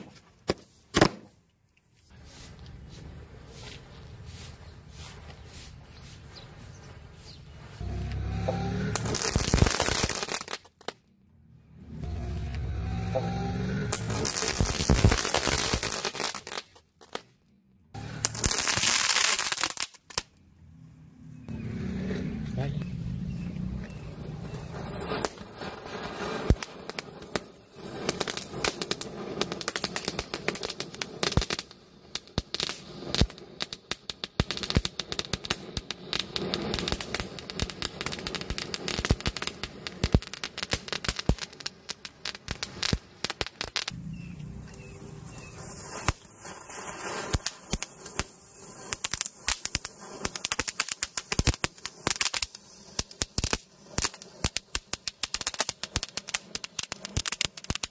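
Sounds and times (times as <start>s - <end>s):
sharp crackling pops: 0.0s - 1.9s, 6.2s - 11.2s, 11.9s - 20.5s, 21.6s - 57.9s
firework fountains hissing: 2.1s - 10.8s, 11.7s - 16.8s, 18.0s - 20.2s, 21.4s - 57.9s
matchsticks flaring: 44.8s - 52.7s.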